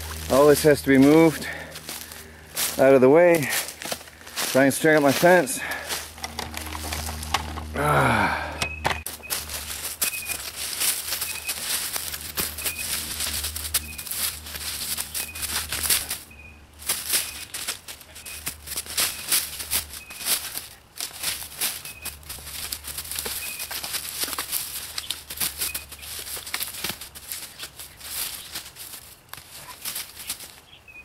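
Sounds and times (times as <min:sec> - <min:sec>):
footsteps on dry leaves: 0:00.0 - 0:30.9
sticks snapping: 0:18.7 - 0:30.6.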